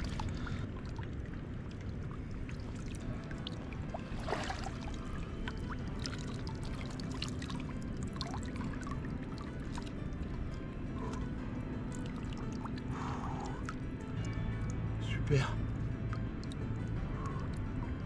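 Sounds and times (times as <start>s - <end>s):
water splash: 0.0s - 10.0s
water pouring and dripping: 0.0s - 15.4s, 16.0s - 18.0s.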